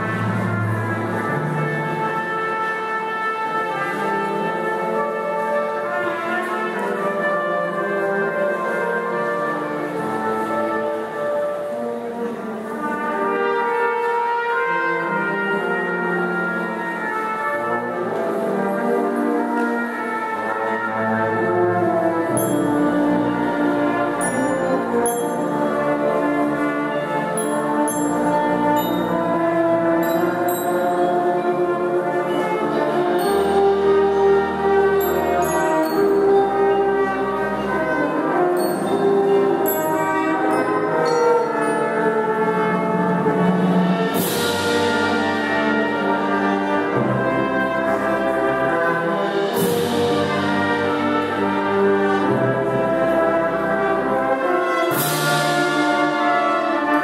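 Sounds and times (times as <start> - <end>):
brass band playing: 0.0 - 57.0.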